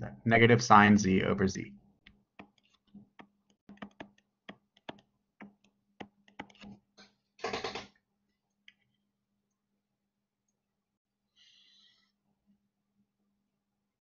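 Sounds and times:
stylus tapping on tablet: 2.1s - 6.8s.

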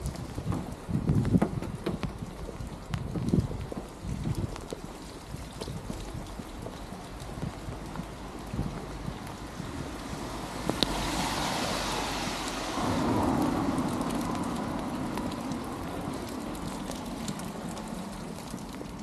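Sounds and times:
rain on a wet street: 0.0s - 19.0s
car tyres hissing past: 10.1s - 14.5s.

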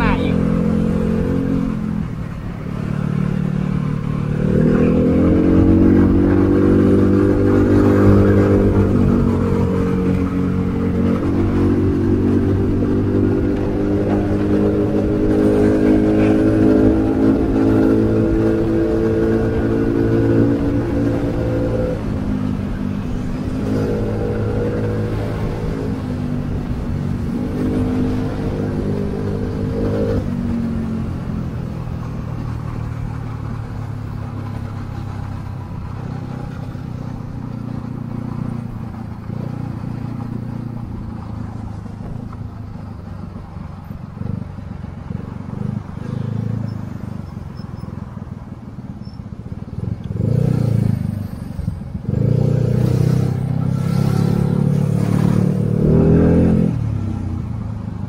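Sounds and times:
scooter engine revving: 0.0s - 31.6s
road and wind noise: 0.0s - 58.0s.

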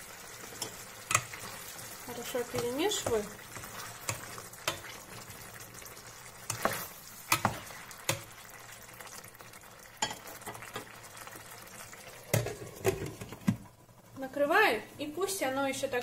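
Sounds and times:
mushrooms sizzling in a frying pan: 0.0s - 16.0s
spatula knocking and scraping a pan: 0.4s - 5.4s, 6.4s - 8.4s, 10.0s - 10.9s.

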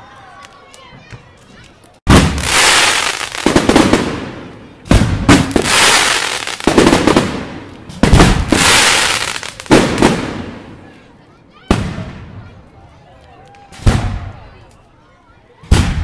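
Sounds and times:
firework hiss: 2.2s - 3.7s, 5.5s - 7.4s, 8.2s - 10.0s.

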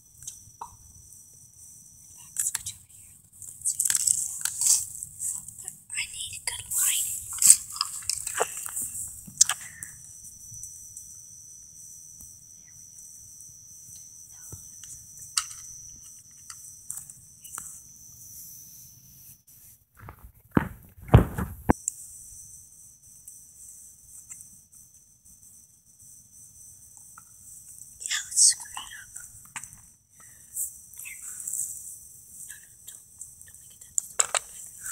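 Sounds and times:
crickets trilling: 0.0s - 19.7s, 21.2s - 34.9s
knocks and rustling near microphone: 20.0s - 21.8s.

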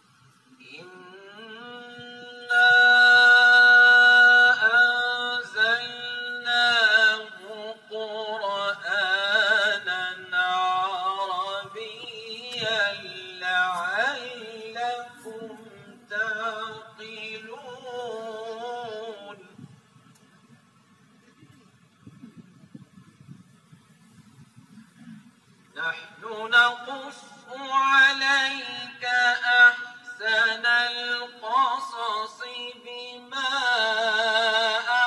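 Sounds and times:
man chanting melodically: 0.6s - 19.7s, 25.7s - 35.0s.

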